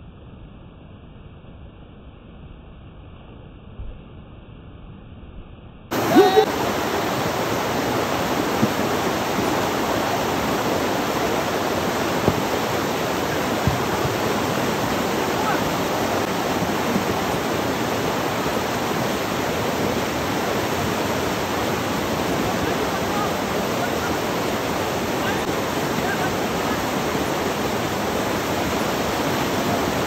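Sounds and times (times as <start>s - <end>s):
person speaking: 5.9s - 6.6s
river rushing: 5.9s - 30.0s.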